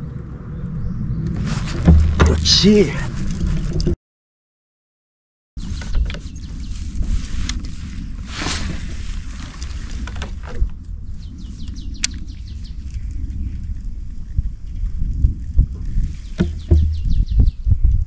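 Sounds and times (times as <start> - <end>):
wind buffeting microphone: 0.0 - 4.0, 5.6 - 18.0
small clicks: 11.6 - 13.9.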